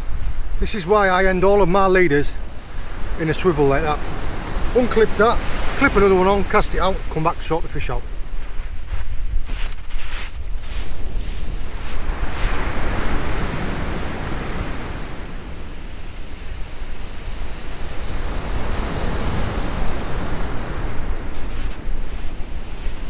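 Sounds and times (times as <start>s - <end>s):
waves breaking on a beach: 0.0s - 23.0s
wind on microphone: 8.0s - 23.0s.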